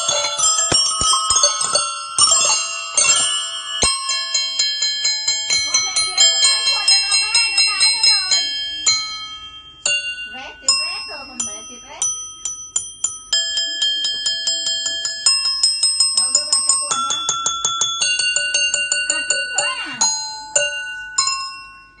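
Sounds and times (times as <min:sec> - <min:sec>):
steel chisel bits ringing when struck: 0:00.0 - 0:21.6.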